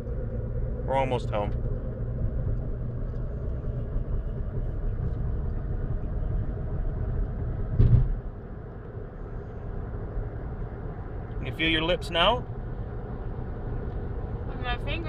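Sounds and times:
car road and engine rumble: 0:00.0 - 0:15.0
thump: 0:07.8 - 0:08.2.

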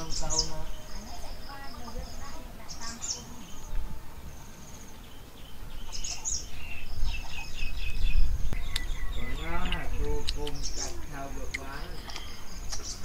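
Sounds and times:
birds chirping: 0:00.0 - 0:13.0
insects buzzing: 0:00.0 - 0:13.0
person speaking: 0:09.2 - 0:12.4.

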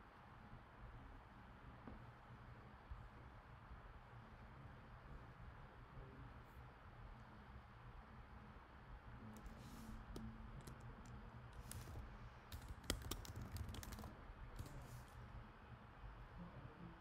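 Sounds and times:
faint low hum: 0:00.0 - 0:17.0
keyboard key clicks: 0:12.5 - 0:14.7.

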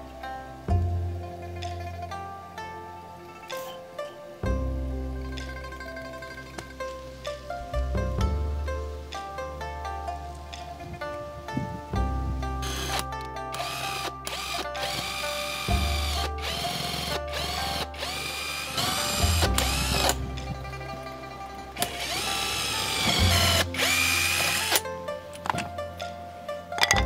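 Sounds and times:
background music with bass line: 0:00.0 - 0:27.0
power drill whine: 0:13.6 - 0:20.2, 0:21.8 - 0:24.8.

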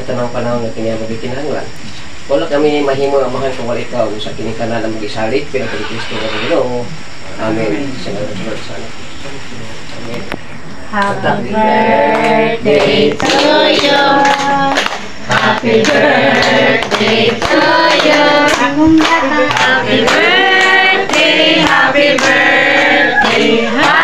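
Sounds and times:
group singing: 0:10.9 - 0:24.0
hands clapping: 0:12.1 - 0:24.0.

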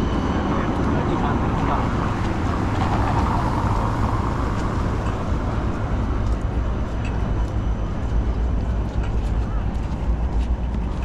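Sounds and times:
traffic rumble: 0:00.0 - 0:11.0
vehicle tyres on wet road: 0:00.8 - 0:06.7.

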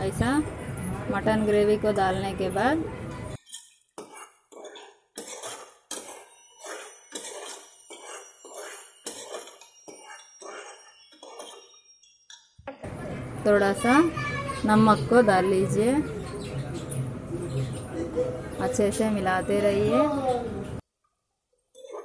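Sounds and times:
metal spoon scraping a pot: 0:02.0 - 0:12.6, 0:21.8 - 0:22.0.

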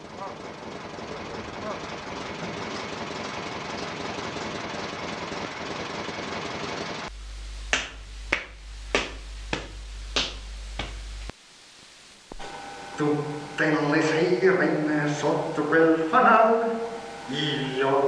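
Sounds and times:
low hum: 0:07.0 - 0:18.0
sharp snaps: 0:07.6 - 0:11.4.

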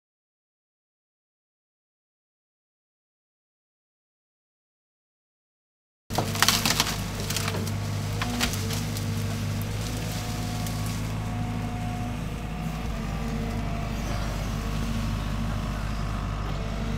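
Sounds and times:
wood cracking and splintering: 0:06.1 - 0:15.8
excavator engine running: 0:06.1 - 0:16.9.

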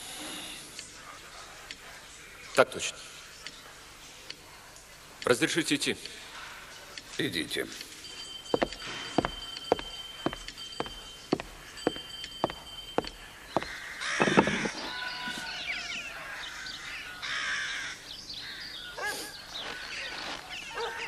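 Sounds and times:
footsteps on hard floor: 0:08.5 - 0:14.8
crows cawing: 0:13.3 - 0:21.0.

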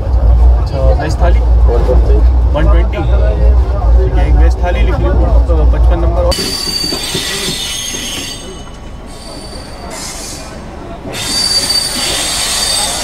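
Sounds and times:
train wheels squealing: 0:06.3 - 0:13.0.

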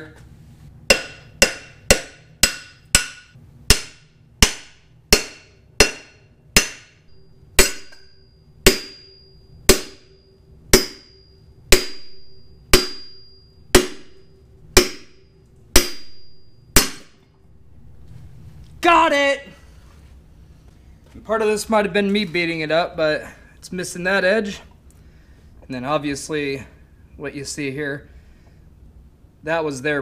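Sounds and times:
hammer striking metal bar: 0:00.9 - 0:17.4.

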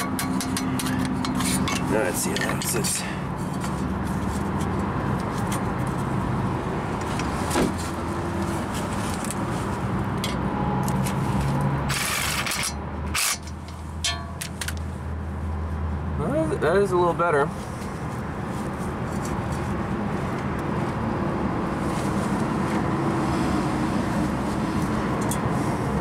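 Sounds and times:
hand tools clicking and scraping: 0:00.0 - 0:06.1, 0:08.6 - 0:14.8.

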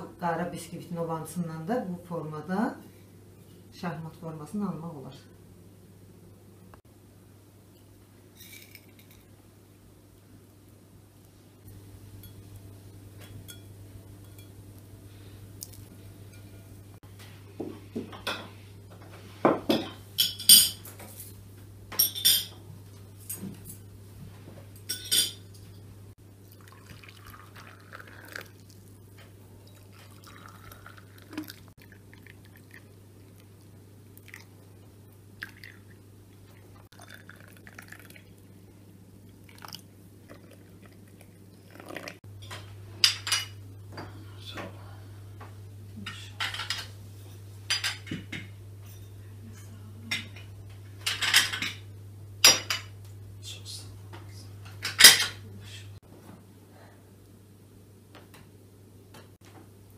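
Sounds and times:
tea pouring from kettle: 0:26.4 - 0:28.9, 0:29.6 - 0:33.5, 0:35.4 - 0:36.0, 0:36.9 - 0:38.4, 0:39.4 - 0:42.2.

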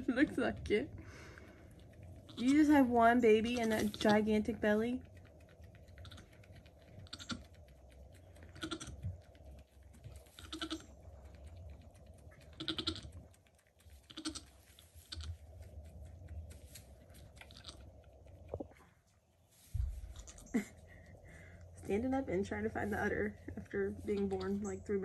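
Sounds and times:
goat wet licking: 0:00.0 - 0:21.0
soft low goat bleats: 0:07.0 - 0:07.5, 0:08.5 - 0:09.0, 0:10.4 - 0:10.9, 0:12.5 - 0:13.2, 0:14.0 - 0:15.4, 0:20.0 - 0:20.6
rustling of straw bedding: 0:16.4 - 0:17.6, 0:19.4 - 0:20.5.

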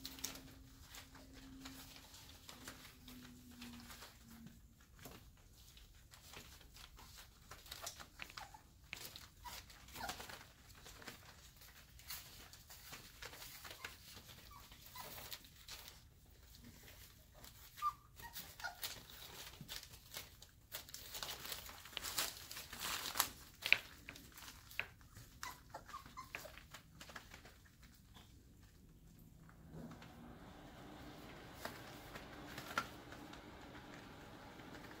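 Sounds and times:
paws scuffling on fabric: 0:00.0 - 0:29.2
puppies whimpering and squeaking: 0:06.5 - 0:28.4.

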